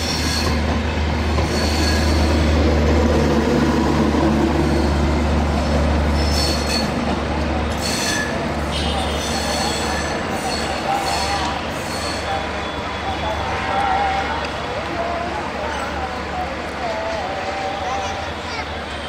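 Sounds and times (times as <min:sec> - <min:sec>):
train wheels rumbling on rails: 0:00.0 - 0:19.0
high wheel squeals: 0:01.4 - 0:02.6, 0:04.5 - 0:07.0, 0:07.7 - 0:14.0.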